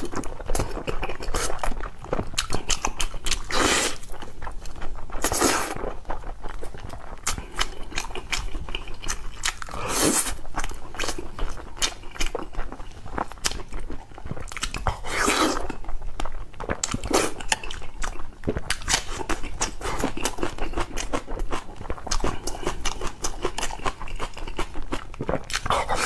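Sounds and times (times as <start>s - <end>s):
chewing and crunching food: 0.0s - 26.0s
wet mouth clicks: 14.4s - 26.0s.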